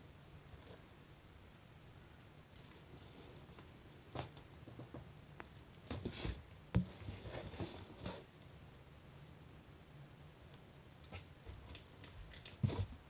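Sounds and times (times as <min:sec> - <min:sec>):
kitten playing on floor: 0:11.0 - 0:13.0.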